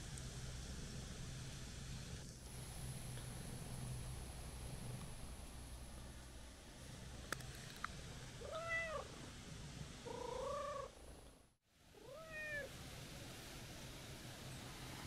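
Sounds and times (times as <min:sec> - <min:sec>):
cat meowing: 0:08.4 - 0:09.1, 0:10.1 - 0:10.9, 0:12.0 - 0:12.7.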